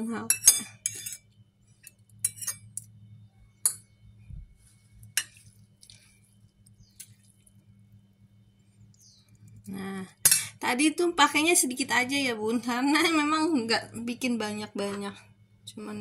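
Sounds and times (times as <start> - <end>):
low steady hum: 0.0 - 16.0
utensils clinking against dishes: 0.3 - 2.9, 10.2 - 10.6.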